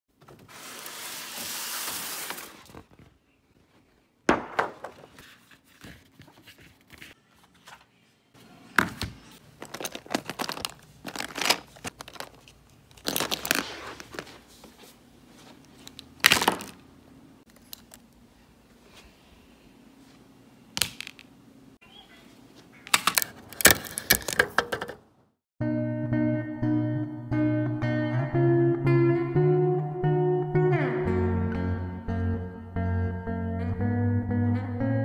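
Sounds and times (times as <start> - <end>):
paper rustling: 0.2 - 4.1, 4.8 - 7.9, 9.2 - 16.8
paint tubes rattling in plastic box: 9.5 - 14.3, 23.0 - 25.0.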